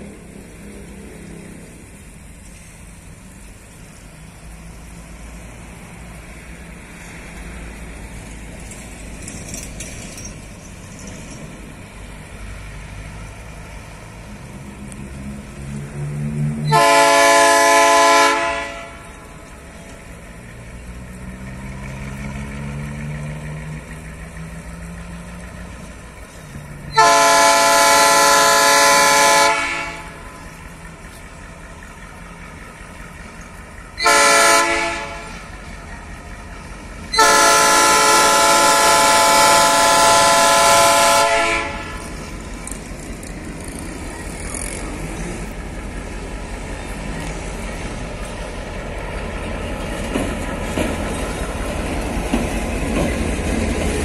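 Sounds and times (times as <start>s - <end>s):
locomotive air horn blasts: 16.6s - 19.2s, 26.9s - 30.3s, 34.0s - 35.5s, 37.1s - 42.3s.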